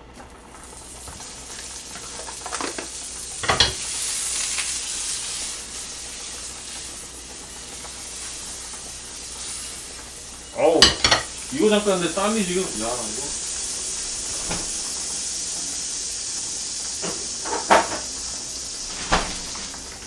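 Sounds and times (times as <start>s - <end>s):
fat sizzling in a frying pan: 0.0s - 20.0s
pan clunk: 2.5s - 3.8s, 10.8s - 11.3s.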